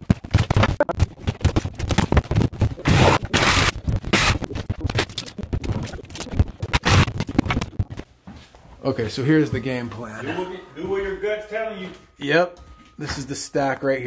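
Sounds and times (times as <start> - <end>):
plaster crumbling: 0.0 - 8.0.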